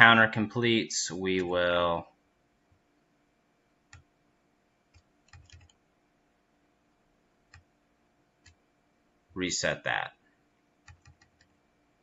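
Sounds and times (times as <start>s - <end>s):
mouse and keyboard clicks: 4.9s - 5.8s, 10.9s - 11.5s.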